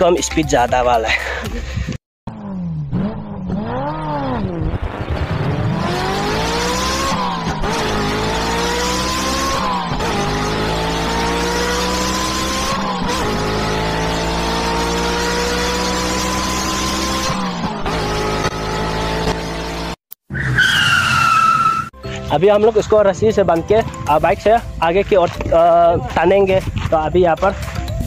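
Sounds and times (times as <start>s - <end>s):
engine revving and accelerating: 2.3s - 20.0s.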